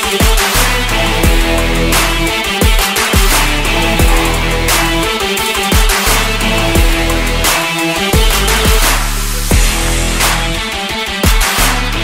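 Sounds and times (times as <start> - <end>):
deep bass hits sweeping downward: 3.3 - 5.4.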